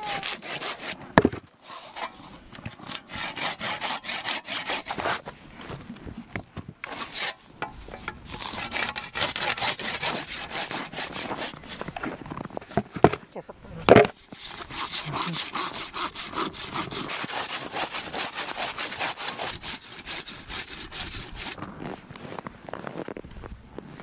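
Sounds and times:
hand saw rasping: 0.1 - 1.0, 1.6 - 2.2, 2.8 - 5.3, 6.8 - 7.4, 8.0 - 11.8, 14.1 - 21.6.

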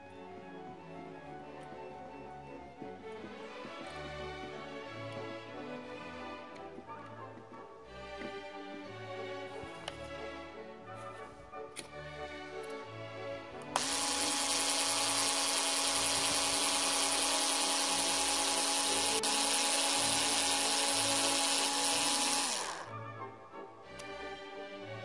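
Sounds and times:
cordless screwdriver motor whining: 13.8 - 23.0.

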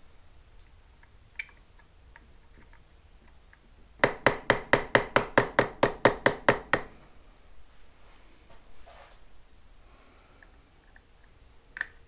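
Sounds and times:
hammer tapping on metal: 4.0 - 7.0.

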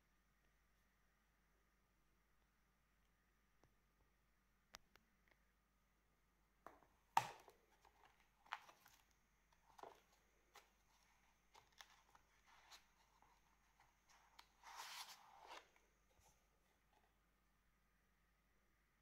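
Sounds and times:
page rustles: 7.7 - 16.4.

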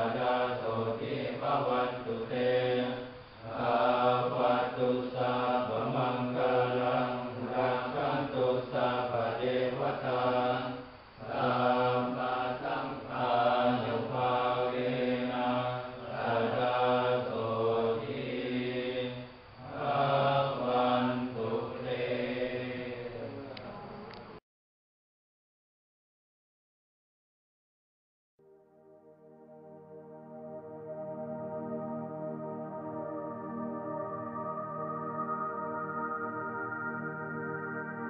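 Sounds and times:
monks chanting in unison: 0.0 - 23.8.

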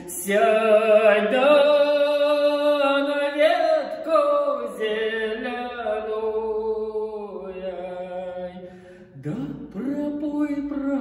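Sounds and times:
man singing folk song solo: 0.0 - 11.0.

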